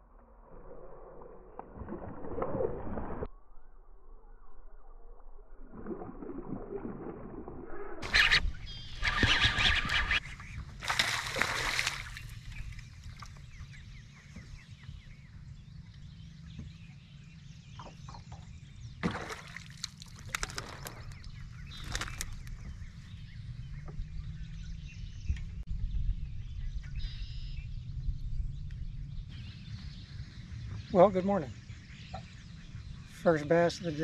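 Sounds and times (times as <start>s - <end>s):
water splashing and sloshing: 1.4s - 3.3s, 5.5s - 14.9s, 17.8s - 23.2s
steady low rumble: 21.0s - 34.0s.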